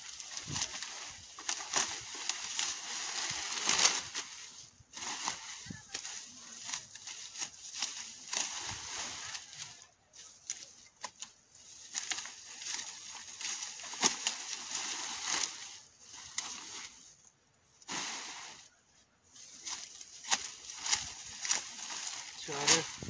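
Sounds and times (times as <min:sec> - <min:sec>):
stalks being cut by hand: 0:10.4 - 0:15.7, 0:19.6 - 0:23.0.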